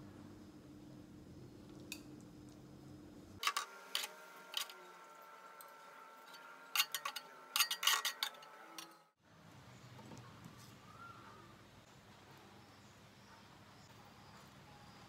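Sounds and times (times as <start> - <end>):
metal tongs clinking on frying pan: 6.3 - 9.0.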